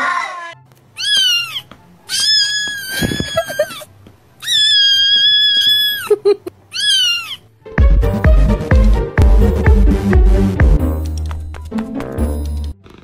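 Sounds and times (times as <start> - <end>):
kitten screaming meows: 0.0 - 6.1, 6.7 - 7.5.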